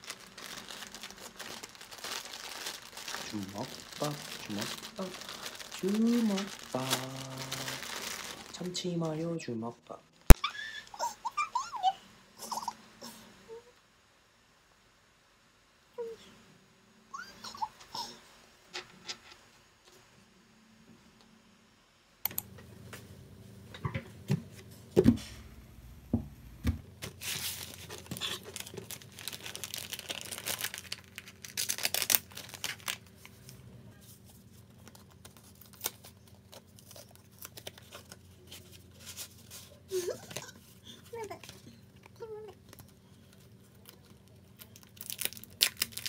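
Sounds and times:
paper crinkling and tearing: 0.0s - 9.3s, 27.0s - 41.7s, 42.6s - 46.0s.

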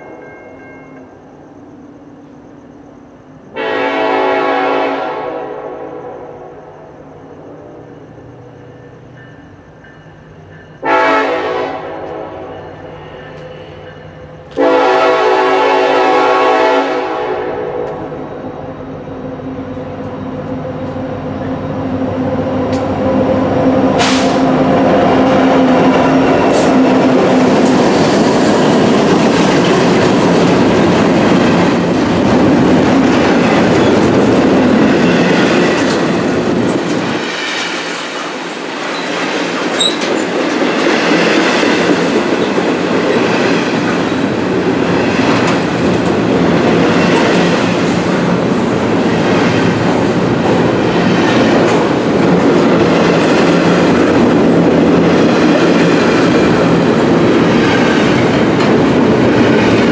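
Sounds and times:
diesel locomotives rumbling past: 0.0s - 59.9s
train horn blast: 3.5s - 6.7s, 10.8s - 13.8s, 14.5s - 18.4s, 23.9s - 24.6s
wheels clacking over rail joints: 23.9s - 59.9s.

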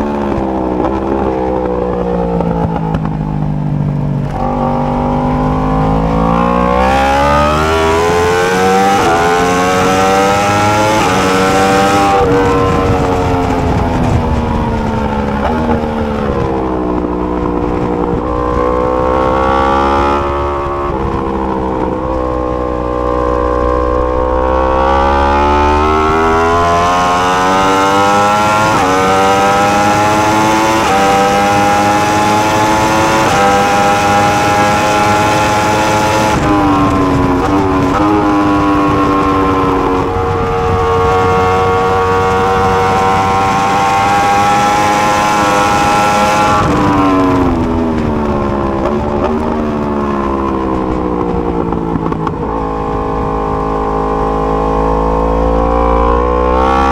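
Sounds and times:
engine downshifts: 0.0s - 56.9s
motorcycle engine accelerating: 0.0s - 56.9s.

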